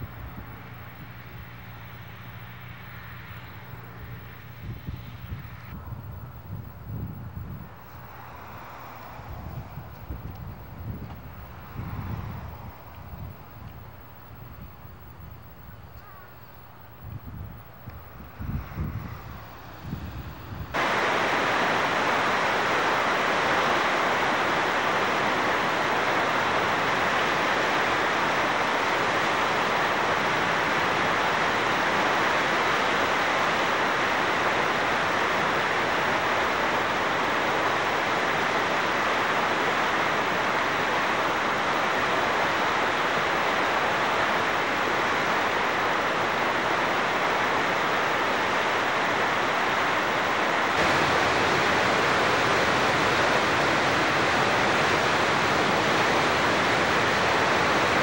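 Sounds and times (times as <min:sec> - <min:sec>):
river rushing over rapids: 0:20.7 - 0:58.0.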